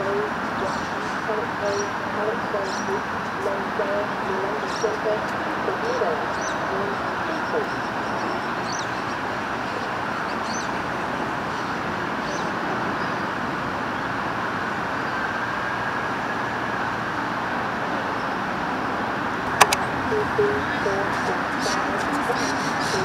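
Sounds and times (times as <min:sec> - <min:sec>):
bird chirps: 0:06.2 - 0:10.8.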